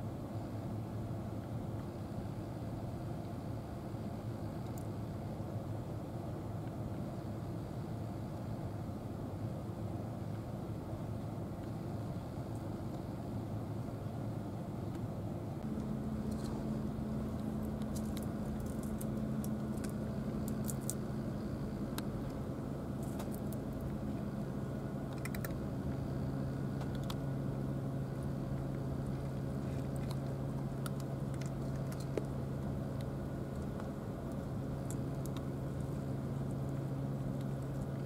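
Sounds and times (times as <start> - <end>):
low mechanical hum: 0.0 - 38.0
cat crunching dry kibble: 16.2 - 21.1, 25.1 - 26.0, 26.8 - 27.3, 28.2 - 38.0.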